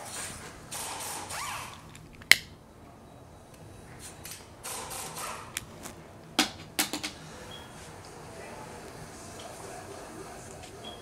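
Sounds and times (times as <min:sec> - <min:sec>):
air tool bursts: 0:00.0 - 0:01.8.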